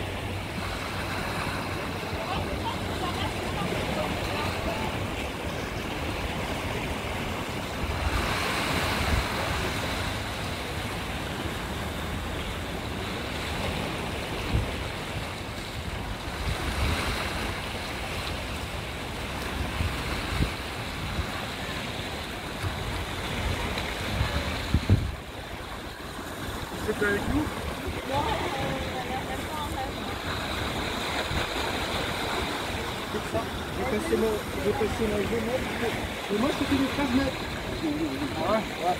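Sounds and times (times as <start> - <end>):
waves breaking over rocks: 0.0 - 38.9
wind buffeting microphone: 22.3 - 38.9.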